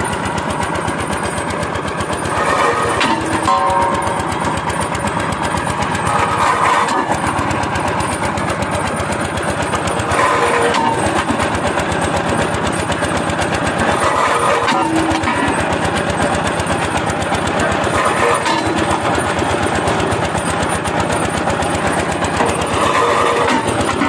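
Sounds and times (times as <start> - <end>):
winch engine chugging: 0.0 - 24.0.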